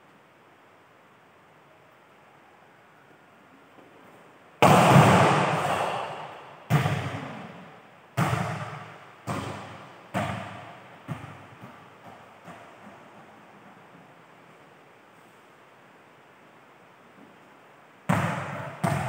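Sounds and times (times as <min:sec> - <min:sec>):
volleyball bouncing on hard floor: 0:04.6 - 0:07.6, 0:08.2 - 0:13.8, 0:18.1 - 0:19.0.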